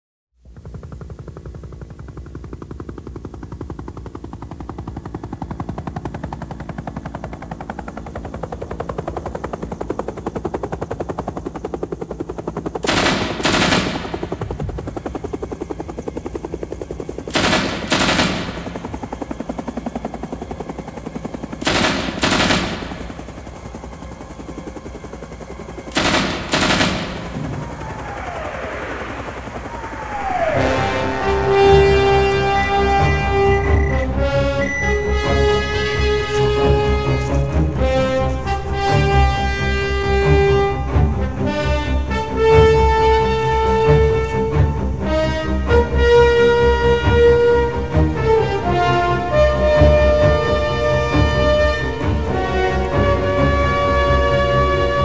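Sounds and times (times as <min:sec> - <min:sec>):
automatic gunfire: 0:12.8 - 0:14.6, 0:17.3 - 0:18.8, 0:21.6 - 0:23.3, 0:25.9 - 0:27.4
loud gunfire bursts: 0:12.8 - 0:14.6, 0:17.3 - 0:19.0, 0:21.6 - 0:23.5, 0:25.9 - 0:27.7
low drone: 0:12.8 - 0:55.0.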